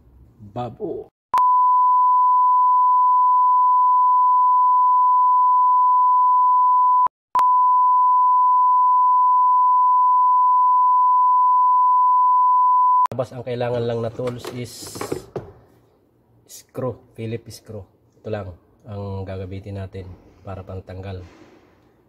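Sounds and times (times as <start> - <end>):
steady test tone beep: 1.4 - 13.1.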